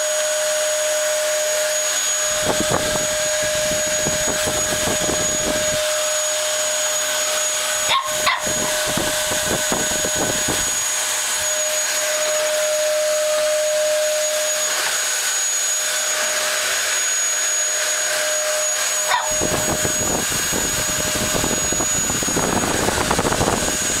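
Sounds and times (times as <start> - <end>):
vacuum cleaner whining: 0.0 - 24.0
puppy barking: 7.8 - 8.8, 19.0 - 19.6.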